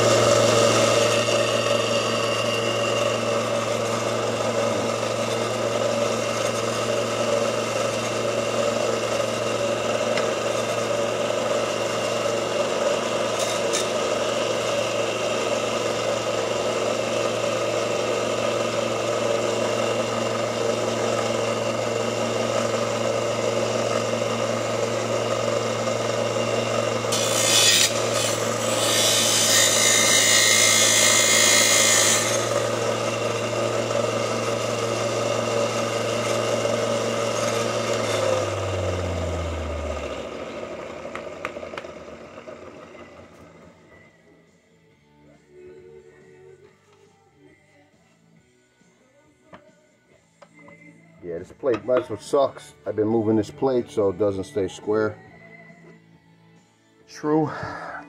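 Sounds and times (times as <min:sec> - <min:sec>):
electric grinder humming: 0:00.0 - 0:44.0
grinder motor winding down: 0:00.0 - 0:44.2.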